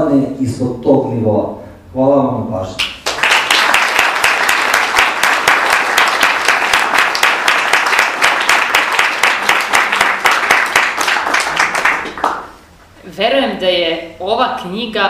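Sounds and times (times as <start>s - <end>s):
audience applauding: 2.8s - 12.6s.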